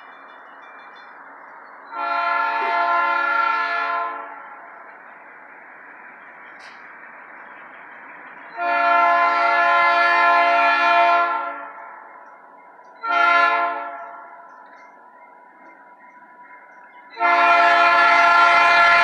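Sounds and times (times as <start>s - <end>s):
locomotive air horn blasts: 1.9s - 4.4s, 8.6s - 11.8s, 13.0s - 14.2s, 17.2s - 19.0s.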